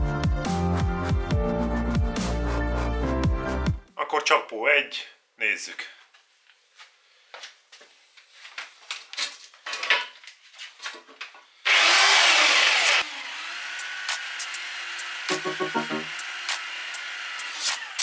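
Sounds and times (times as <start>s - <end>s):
electric drill with abrasive disc: 11.6s - 18.0s.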